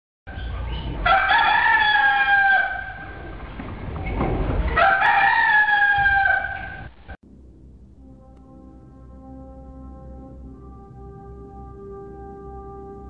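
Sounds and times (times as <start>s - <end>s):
rooster crowing: 1.0s - 3.4s, 4.7s - 6.9s.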